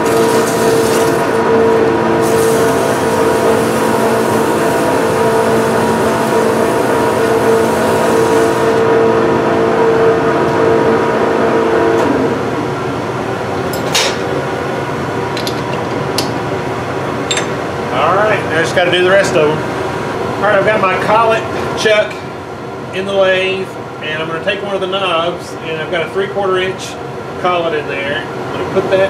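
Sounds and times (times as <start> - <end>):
cutting tool hissing on metal: 2.2 - 8.8.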